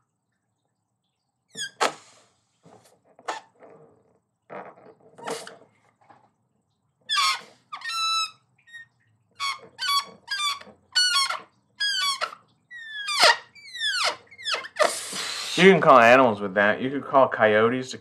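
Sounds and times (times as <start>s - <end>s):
balloon squealing as air escapes: 1.6s - 2.3s, 5.2s - 5.6s, 7.1s - 8.8s, 9.4s - 15.9s.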